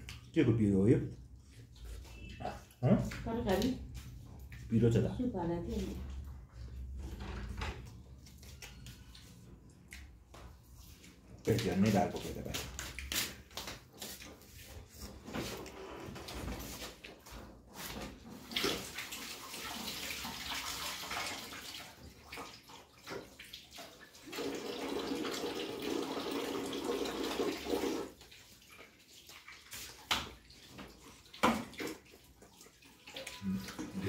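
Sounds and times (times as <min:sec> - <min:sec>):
water running from a tap: 0:18.4 - 0:34.0.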